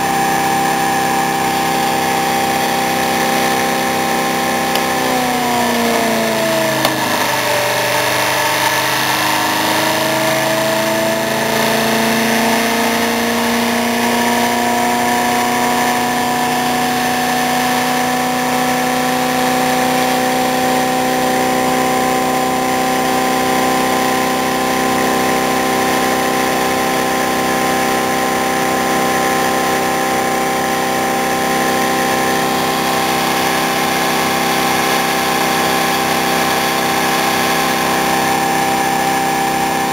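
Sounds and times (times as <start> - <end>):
motor whine: 0.0 - 16.0, 24.0 - 39.9.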